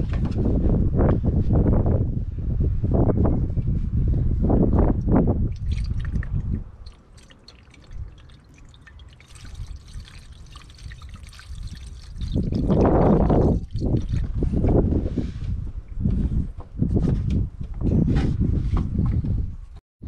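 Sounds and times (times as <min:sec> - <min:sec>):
liquid trickling and splashing: 0:05.5 - 0:14.6.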